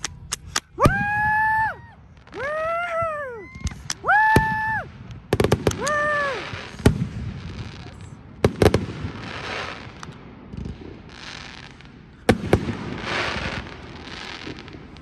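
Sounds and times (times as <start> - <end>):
crackling fizz of fireworks: 0.0 - 15.0
fireworks bangs: 0.0 - 15.0
person exclaiming: 0.8 - 4.9, 5.7 - 6.7.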